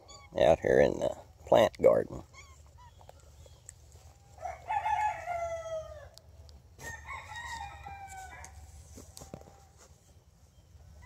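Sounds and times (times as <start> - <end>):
rooster crowing: 4.3 - 6.2, 6.8 - 8.6.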